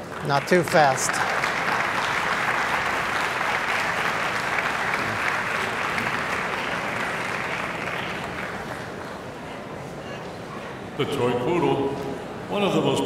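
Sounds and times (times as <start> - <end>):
crowd applauding: 0.0 - 9.4.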